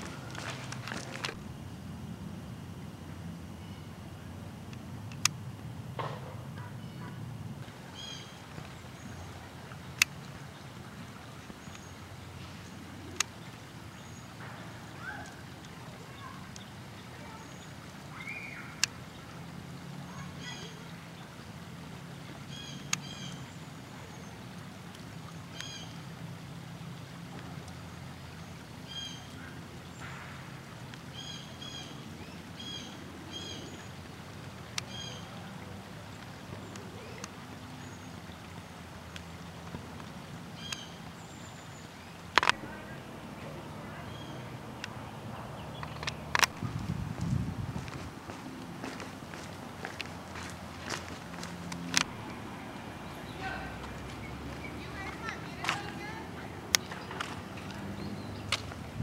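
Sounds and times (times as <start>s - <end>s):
bird calling: 0.0s - 1.4s, 6.0s - 19.2s, 22.4s - 24.4s, 25.4s - 26.0s, 28.8s - 30.4s, 31.1s - 38.2s, 40.5s - 46.8s
low background noise: 0.0s - 59.0s
sharp clicks: 4.7s - 5.4s, 42.3s - 42.6s, 45.8s - 46.6s.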